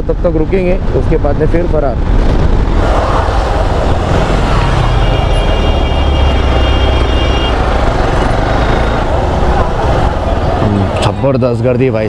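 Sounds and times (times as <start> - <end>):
wind rushing over microphone: 0.0 - 12.0
motorcycle engine rumble: 2.2 - 11.3.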